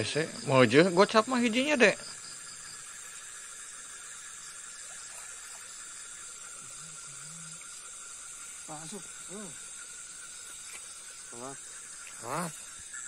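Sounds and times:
crickets chirping: 0.0s - 13.0s.

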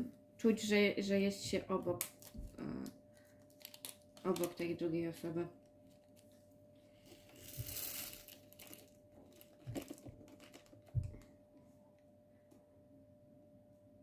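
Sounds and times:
faint steady hum: 0.0s - 14.0s
plastic bag rustling: 5.8s - 11.2s.

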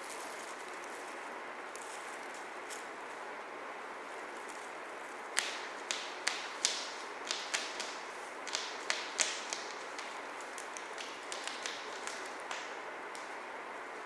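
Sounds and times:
paws tapping foil toy: 5.3s - 13.3s.

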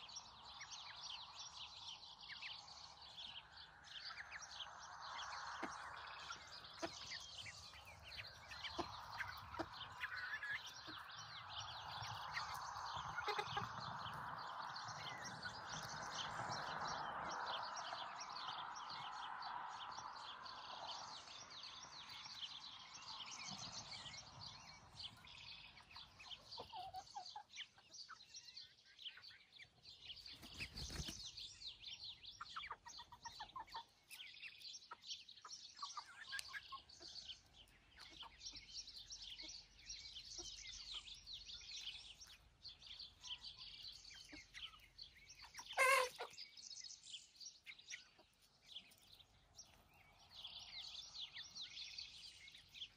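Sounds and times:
chickens clucking: 0.0s - 19.2s, 21.8s - 28.5s, 29.1s - 52.9s.

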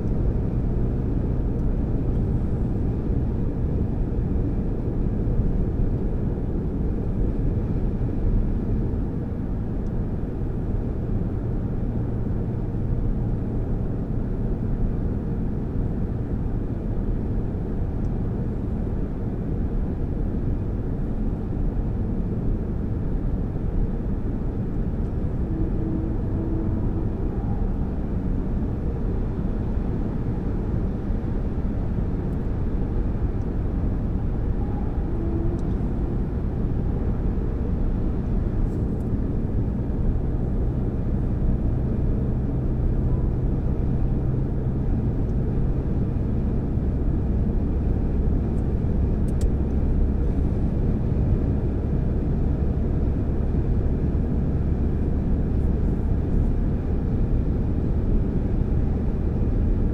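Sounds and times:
car tyres and engine rumble: 0.0s - 59.9s
low drone: 22.9s - 59.9s.

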